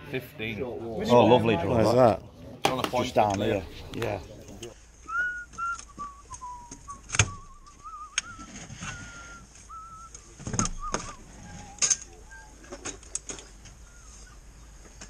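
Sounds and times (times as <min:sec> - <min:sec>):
person whistling: 0:05.0 - 0:12.7.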